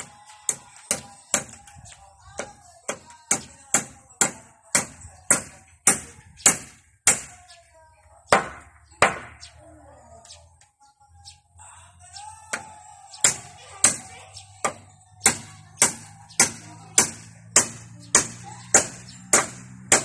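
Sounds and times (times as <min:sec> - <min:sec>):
hammer striking timber: 0:00.5 - 0:01.6, 0:02.4 - 0:07.4, 0:08.3 - 0:09.4, 0:14.6 - 0:20.0.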